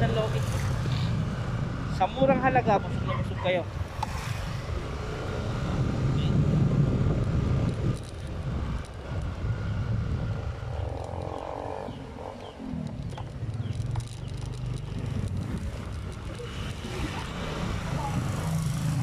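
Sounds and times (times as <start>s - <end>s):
road and wind noise: 0.0s - 19.0s
motorcycle engine running: 6.4s - 19.0s.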